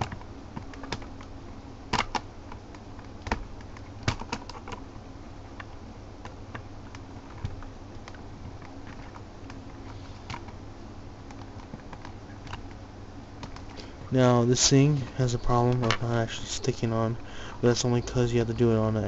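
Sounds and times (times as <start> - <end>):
sharp plastic snaps: 1.9 - 4.8.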